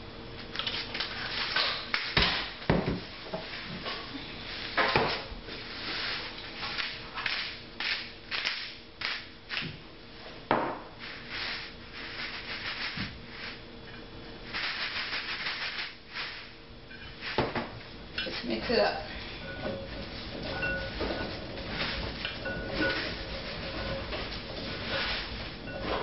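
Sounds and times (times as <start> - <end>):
salt canister shaking: 11.1 - 13.6, 14.4 - 16.6.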